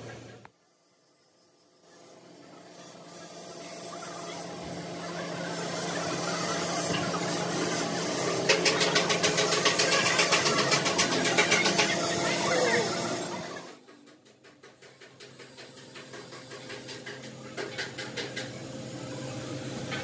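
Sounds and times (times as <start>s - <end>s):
machine running: 1.8s - 20.0s
fast regular machine beat: 4.9s - 13.8s.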